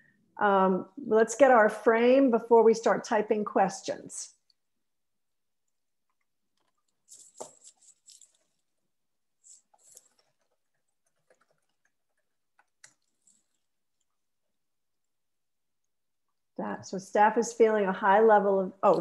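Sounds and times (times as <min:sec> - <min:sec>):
computer keyboard typing: 0:09.4 - 0:13.7.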